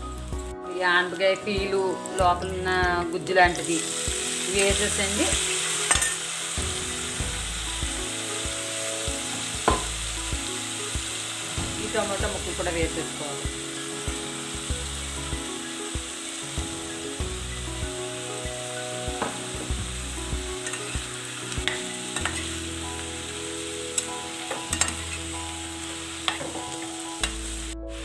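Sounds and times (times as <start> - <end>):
vegetables sizzling in hot oil: 0.0 - 28.0
steel ladle scraping a pan: 4.6 - 6.6, 21.6 - 22.6, 24.0 - 25.3.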